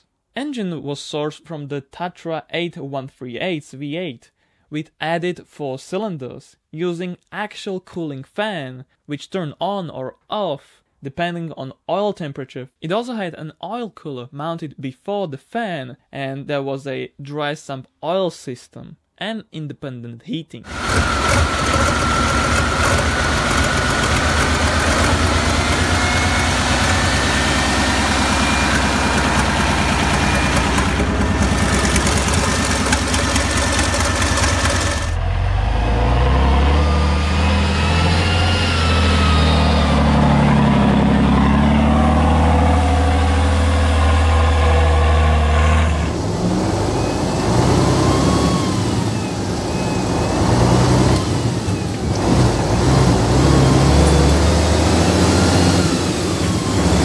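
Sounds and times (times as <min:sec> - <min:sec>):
diesel engine with high whine: 0:20.7 - 0:57.0
truck engine droning under way: 0:20.7 - 0:57.0.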